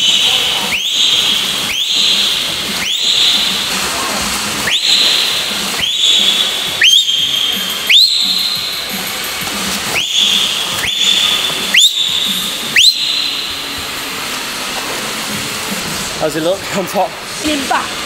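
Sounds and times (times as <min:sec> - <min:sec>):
water splashing: 0:00.0 - 0:18.0
two-finger whistles: 0:00.1 - 0:03.5, 0:04.6 - 0:08.9, 0:09.9 - 0:13.5.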